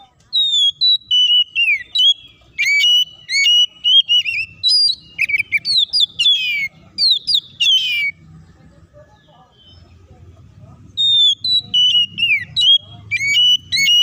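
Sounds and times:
bird sharp chips: 0:00.0 - 0:08.2, 0:11.0 - 0:14.0
bird singing whistled song: 0:00.0 - 0:08.2, 0:10.9 - 0:14.0.

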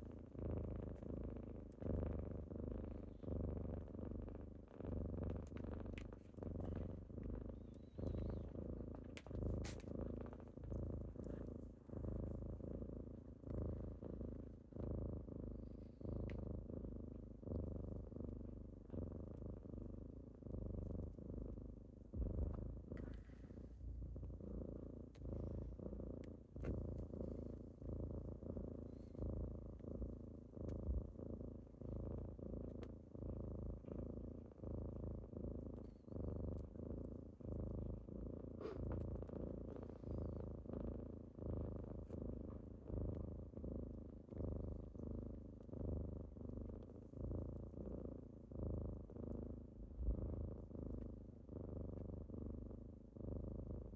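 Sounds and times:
kitten purring: 0:00.0 - 0:53.9.

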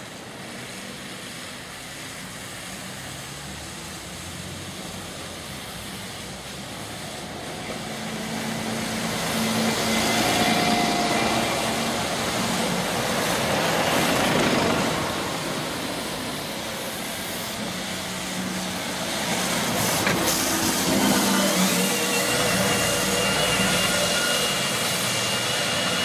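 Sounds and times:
bus engine hum: 0:00.0 - 0:26.0
tyres hissing on wet road: 0:00.0 - 0:26.0.

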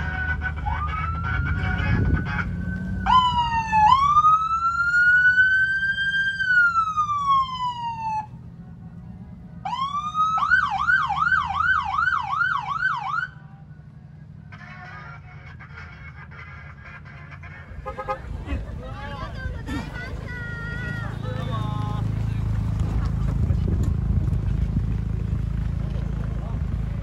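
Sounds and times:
police siren wailing and yelping: 0:00.0 - 0:08.3, 0:09.7 - 0:13.4
vehicle engine rumbling: 0:00.0 - 0:27.0.

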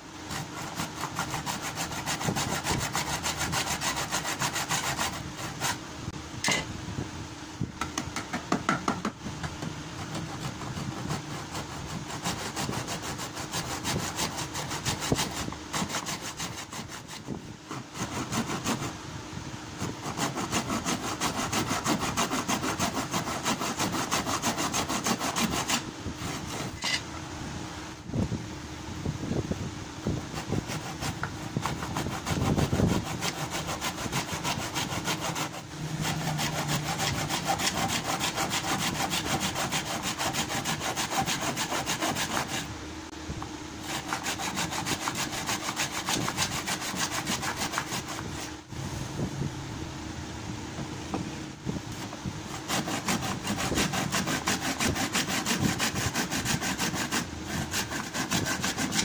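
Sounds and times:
hand saw cutting wood: 0:00.2 - 0:05.8, 0:10.0 - 0:19.0, 0:19.8 - 0:27.0, 0:30.1 - 0:42.7, 0:43.8 - 0:48.6, 0:51.9 - 0:59.0.

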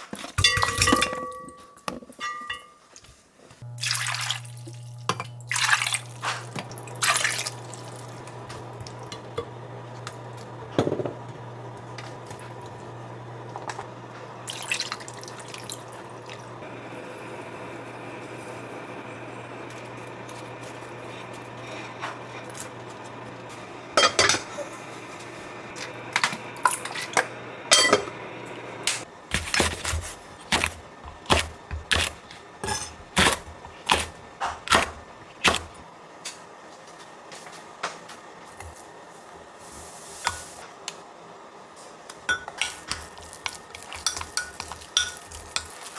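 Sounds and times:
dishes clinking: 0:00.3 - 0:03.0, 0:24.0 - 0:24.7, 0:26.6 - 0:28.1
liquid pouring into a pot: 0:03.8 - 0:08.2, 0:14.4 - 0:16.5.

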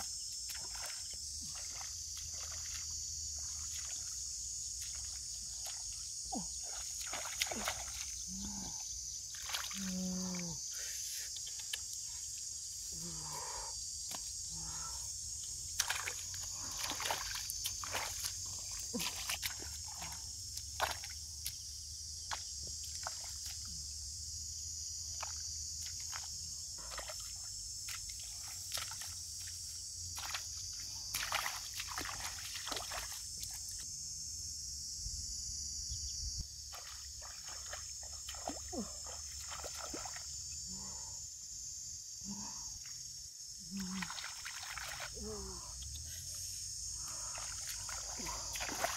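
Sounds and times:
feet wading through water and mud: 0:00.0 - 0:10.4, 0:14.0 - 0:23.6, 0:25.1 - 0:33.8, 0:36.7 - 0:40.4, 0:43.8 - 0:48.9
high-pitched insect drone: 0:00.0 - 0:48.9.

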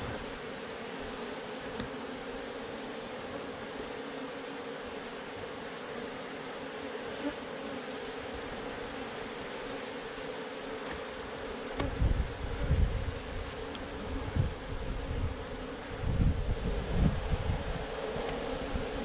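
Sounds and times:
honey bees buzzing: 0:00.0 - 0:19.0
wind buffeting microphone: 0:11.8 - 0:19.0.

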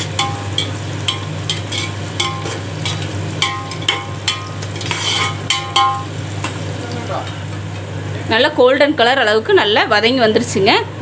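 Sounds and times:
onions sizzling in hot oil: 0:00.0 - 0:09.1
spoon scraping metal pot: 0:00.2 - 0:06.0.

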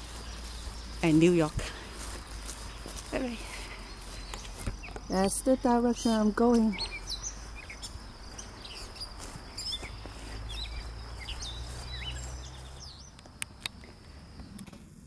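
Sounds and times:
songbirds chirping: 0:00.0 - 0:14.8
sharp clicks: 0:13.1 - 0:13.9.

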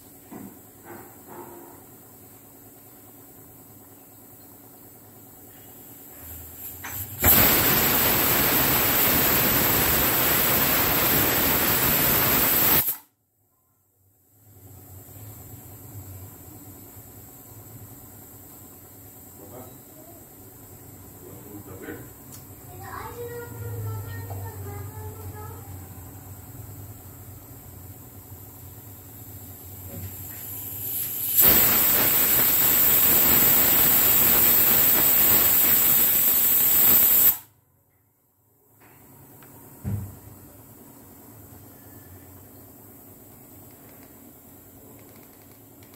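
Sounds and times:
pressure cooker steam hiss: 0:05.8 - 0:13.1, 0:28.8 - 0:37.5.

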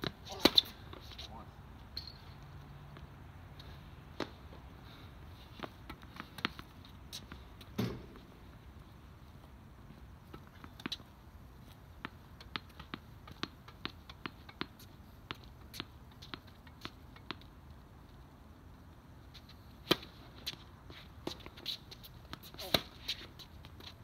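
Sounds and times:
shoes on court: 0:00.0 - 0:01.5, 0:09.8 - 0:17.6, 0:19.3 - 0:24.0.

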